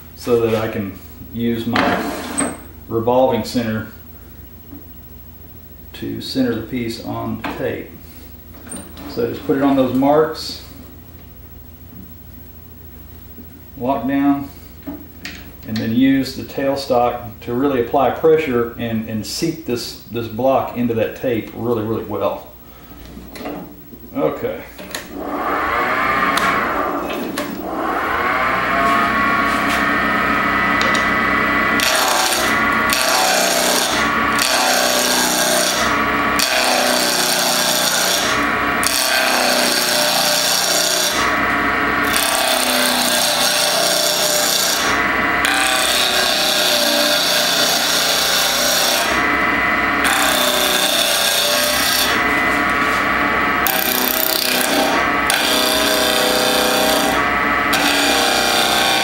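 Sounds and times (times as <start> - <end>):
lathe motor hum: 24.9 - 59.0
gouge scraping spinning wood: 25.1 - 59.0.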